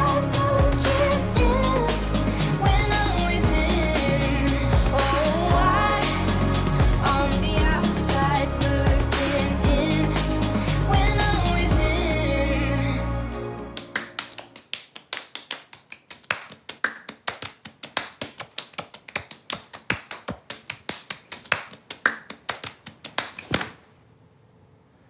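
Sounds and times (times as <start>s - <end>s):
hand-clapping game: 0.0s - 7.0s, 13.3s - 23.8s
song: 0.0s - 14.5s.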